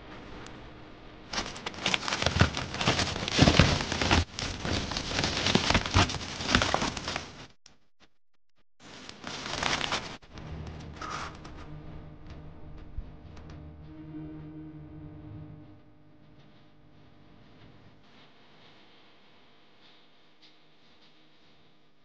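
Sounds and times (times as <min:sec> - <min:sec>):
foil insulation sheet crinkling: 0:01.3 - 0:07.5, 0:08.8 - 0:10.3.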